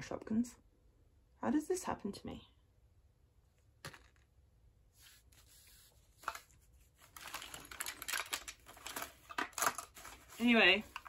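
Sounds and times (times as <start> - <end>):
plastic zip bag crinkling: 6.2 - 11.0.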